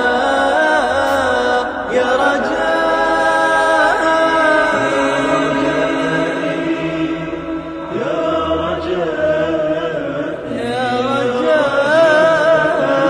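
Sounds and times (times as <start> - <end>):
devotional song singing voice: 0.0 - 13.0.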